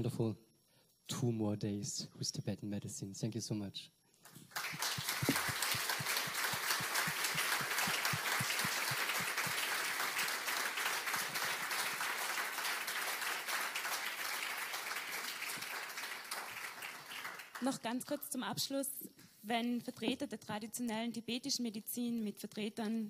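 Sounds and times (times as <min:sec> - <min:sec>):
audience applauding: 0:04.3 - 0:17.8.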